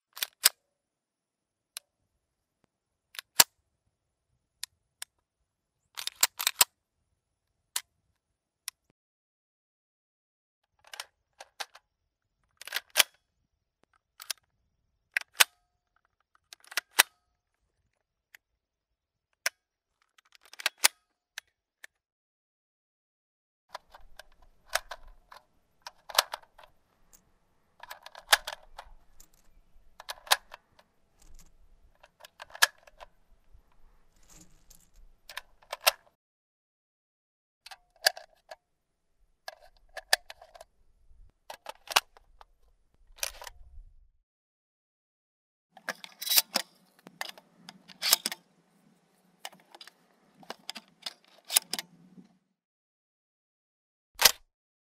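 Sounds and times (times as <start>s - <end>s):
rattling sliding handling noise: 33.8s - 35.6s
gun action clicks: 54.2s - 54.4s.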